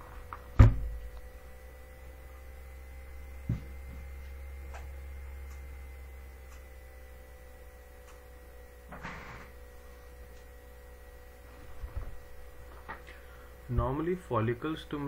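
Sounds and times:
low electrical hum: 0.0 - 15.0
dull thump: 0.5 - 1.0.

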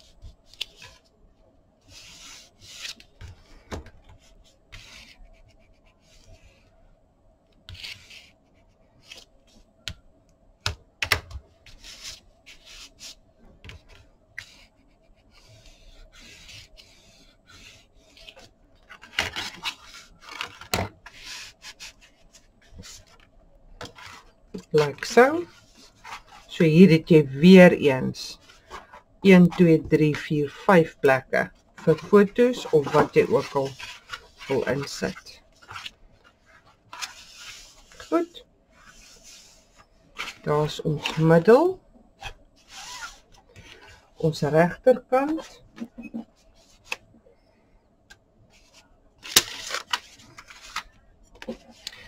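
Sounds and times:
rubbing over card: 23.9 - 27.1, 31.8 - 41.5.

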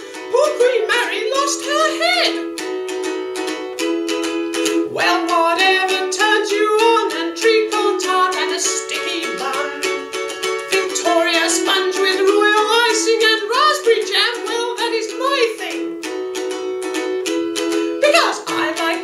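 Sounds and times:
person singing: 0.0 - 2.6, 4.7 - 16.0, 17.9 - 19.0
ukulele strumming: 0.0 - 19.0.

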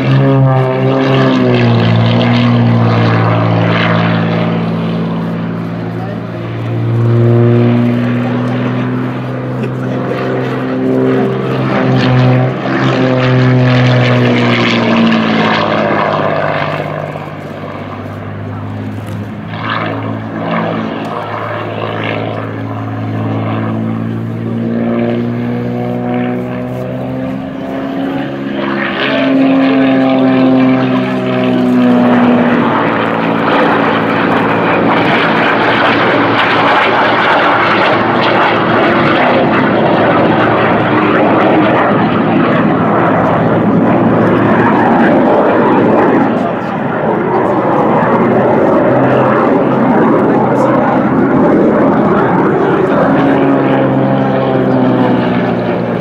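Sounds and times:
jet roaring overhead: 0.0 - 56.0
propeller plane engine running hard: 0.0 - 56.0.

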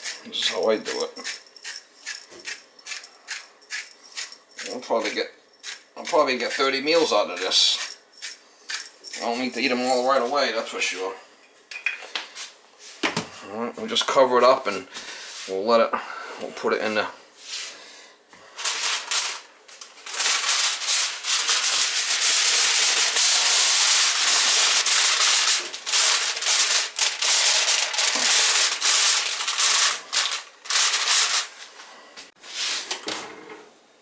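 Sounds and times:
aluminium foil crinkling: 18.6 - 31.6.

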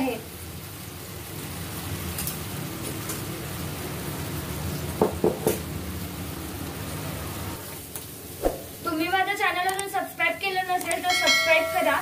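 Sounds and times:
liquid bubbling and sizzling: 0.0 - 12.0
spatula knocking on a pan: 5.0 - 5.6.

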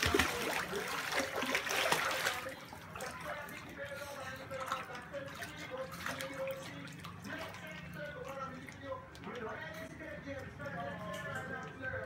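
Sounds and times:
pool water splashing: 0.0 - 12.0.

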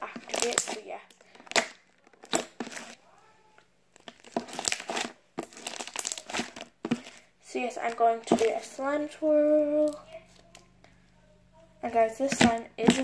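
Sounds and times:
slime crackling and crunching: 0.0 - 3.2, 3.9 - 8.9.

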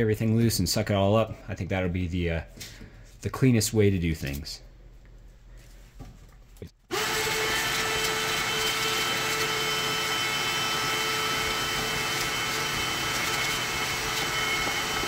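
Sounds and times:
shop vac whining: 6.8 - 15.0
vacuum sucking up debris: 6.9 - 15.0.

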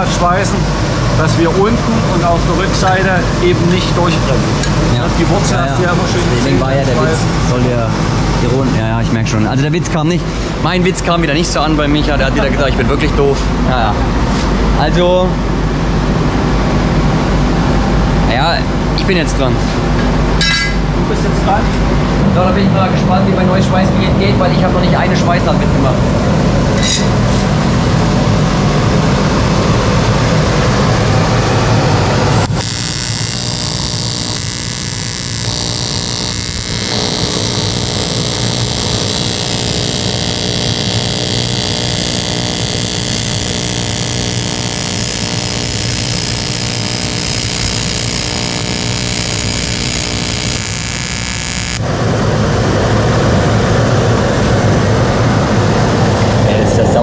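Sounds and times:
welding arc buzzing hiss: 26.5 - 52.6.

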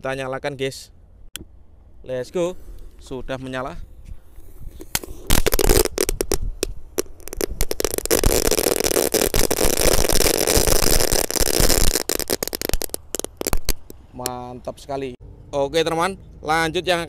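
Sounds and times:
crackling fireworks popping: 4.3 - 14.0.

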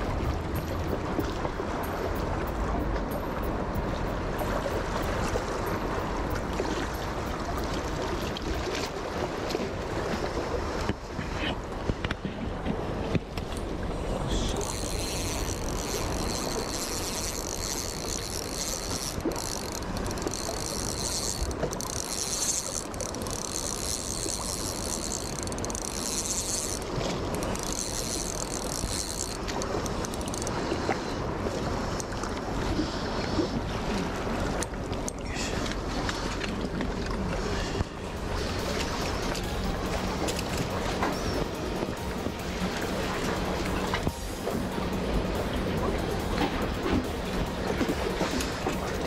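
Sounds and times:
water noise: 0.0 - 49.0
wind: 0.0 - 49.0
fishing tackle clicks and rustles: 10.8 - 31.0, 34.5 - 49.0.

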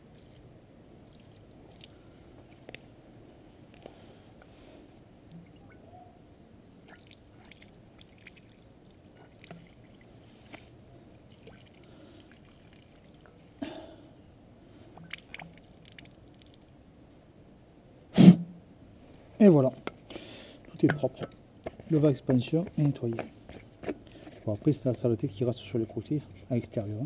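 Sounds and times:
water sloshing in plastic tank: 6.8 - 13.6, 15.0 - 16.5.

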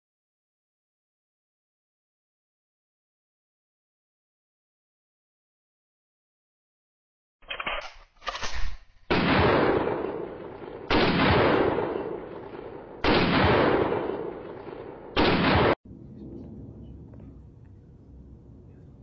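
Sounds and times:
loud booms: 9.1 - 17.4.

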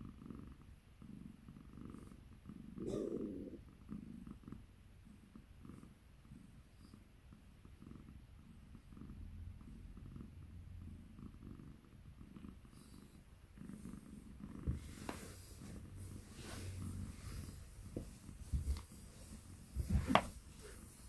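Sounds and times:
cat purring: 0.0 - 21.0
fabric rustle: 14.8 - 21.0.

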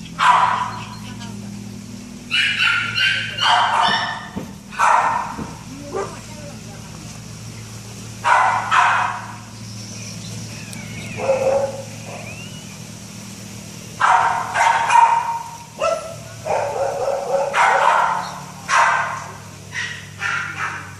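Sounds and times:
puppy barking and yipping: 0.0 - 1.2, 2.3 - 6.2, 8.2 - 9.5, 10.5 - 12.7, 14.0 - 20.9.

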